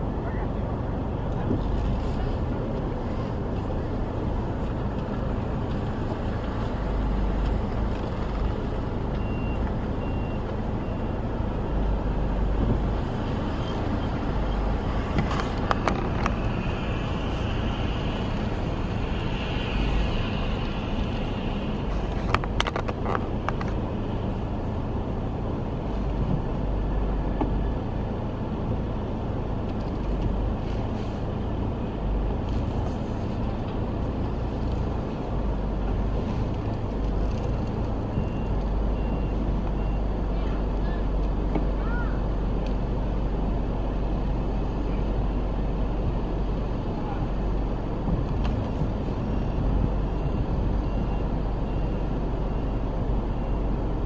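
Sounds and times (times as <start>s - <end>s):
vehicle engine and road rumble: 0.0s - 54.0s
faint high beeps: 9.2s - 11.2s, 38.0s - 41.8s, 49.2s - 53.8s.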